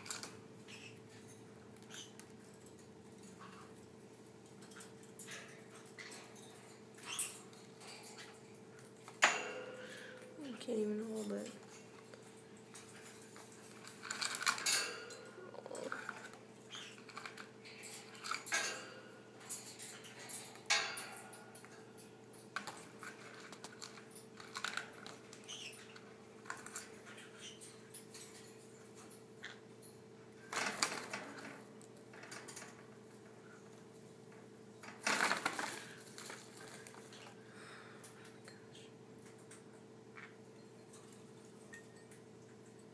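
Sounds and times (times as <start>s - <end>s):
parrot clattering on cage bars: 4.4s - 10.2s, 11.7s - 33.3s, 34.8s - 37.2s.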